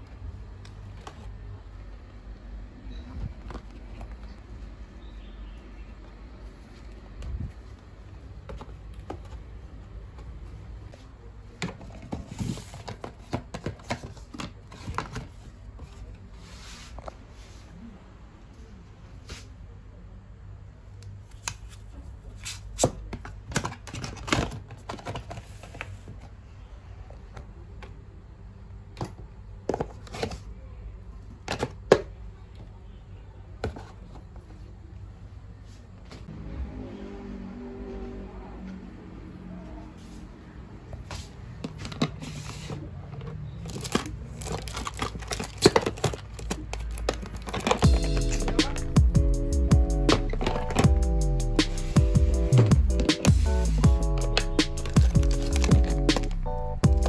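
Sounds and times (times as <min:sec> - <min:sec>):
rustling: 0:53.3 - 0:57.0.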